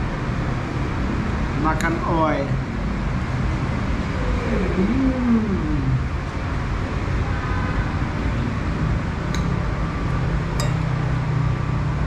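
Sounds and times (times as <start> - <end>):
street and traffic noise: 0.0 - 12.0
spoon clinking against dish: 10.6 - 11.0.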